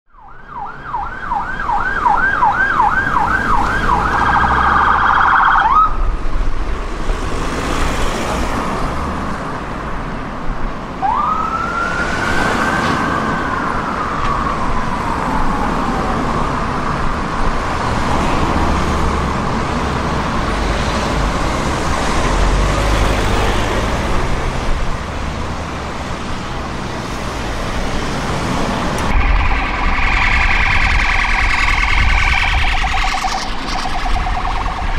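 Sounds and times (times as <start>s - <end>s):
siren wail: 0.1s - 6.2s, 11.0s - 20.4s, 28.2s - 34.9s
street traffic: 0.1s - 34.9s
siren yelp and warble: 0.2s - 6.1s, 11.0s - 17.6s, 29.0s - 34.9s.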